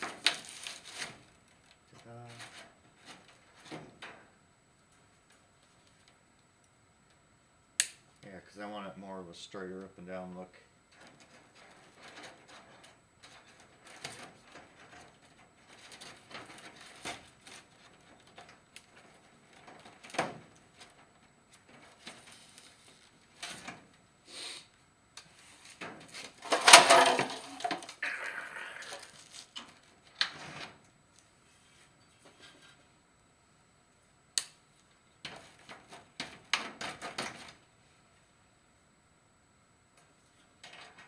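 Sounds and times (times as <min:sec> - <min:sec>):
chicken wire scraping and rustling: 0:11.0 - 0:23.8
wire crinkling: 0:25.2 - 0:30.3.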